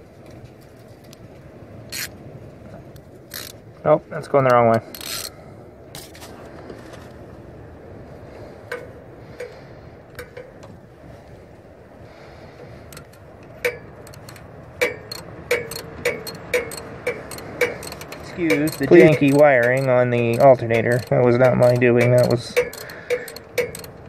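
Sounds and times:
socket ratchet clicking: 3.3 - 3.6, 4.9 - 5.3, 12.9 - 24.0.

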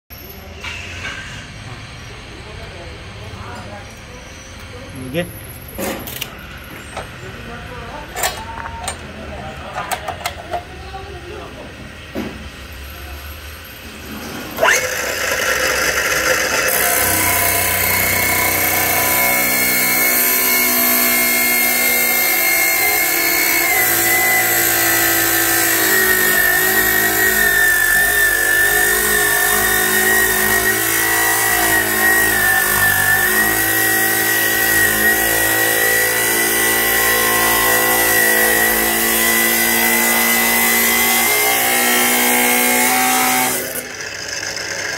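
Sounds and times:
saw wheel grinding through steel: 13.4 - 44.9
chop saw whining: 14.1 - 44.9.

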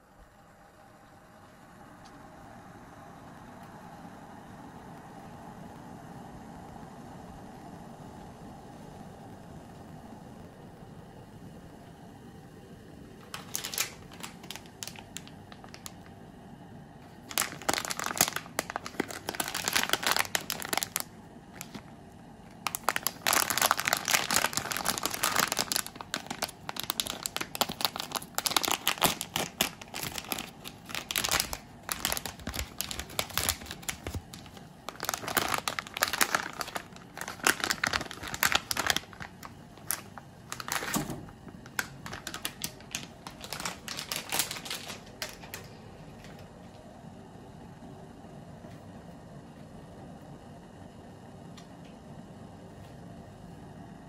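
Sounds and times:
plastic packet crinkling: 13.2 - 16.2, 17.0 - 46.4.

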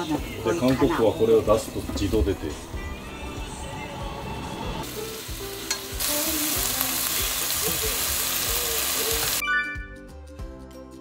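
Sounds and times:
meat sizzling in a pan: 4.8 - 9.4.

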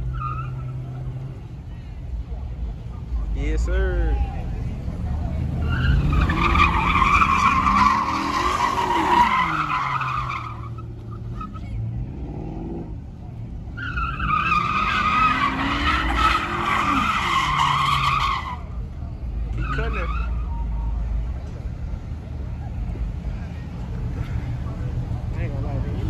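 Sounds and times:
car engine revving: 4.2 - 21.6
tyres squealing: 5.6 - 11.9, 13.8 - 18.8.

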